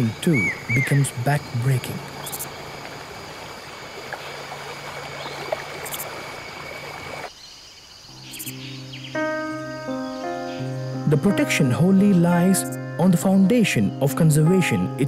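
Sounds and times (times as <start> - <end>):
water rushing around vehicle wheels: 1.9 - 7.3.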